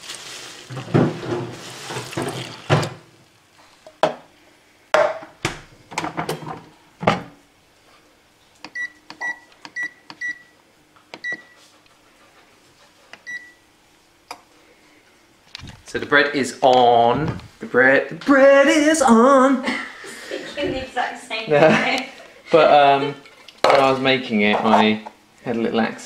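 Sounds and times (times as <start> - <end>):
water pouring into pan: 0.0 - 3.0.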